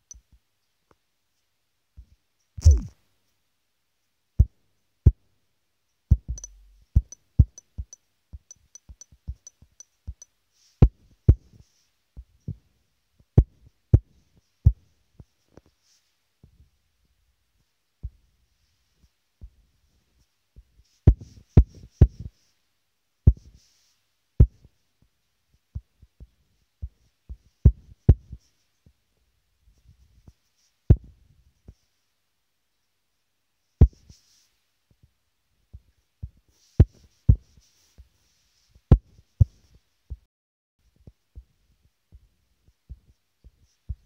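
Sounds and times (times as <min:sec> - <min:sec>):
fingertips tapping touchscreen: 0:02.6 - 0:02.9, 0:06.1 - 0:10.2.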